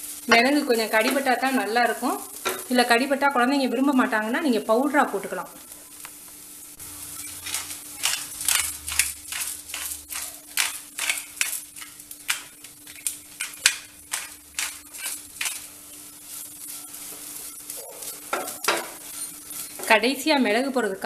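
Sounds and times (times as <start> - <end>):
stirring in a pan: 6.8 - 20.6
pepper mill grinding: 6.9 - 20.3.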